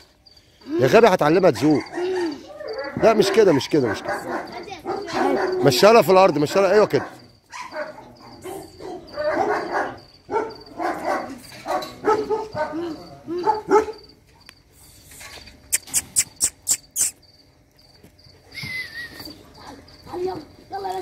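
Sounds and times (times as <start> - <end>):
crickets chirping: 0.0 - 21.0
dogs barking and whining: 1.5 - 14.4, 18.4 - 21.0.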